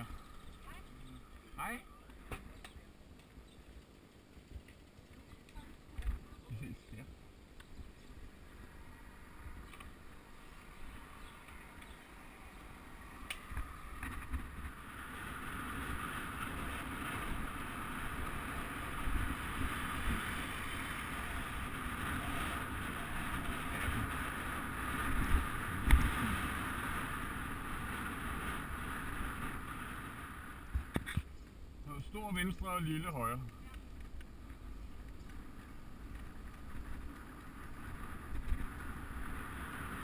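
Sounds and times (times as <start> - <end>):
wind rushing over microphone: 8.2 - 31.3, 35.3 - 40.0.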